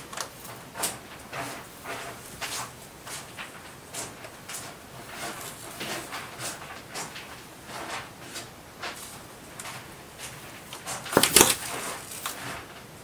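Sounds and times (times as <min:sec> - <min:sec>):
cat scratching and scrabbling: 0:00.0 - 0:13.0
sharp knocks: 0:11.1 - 0:11.8.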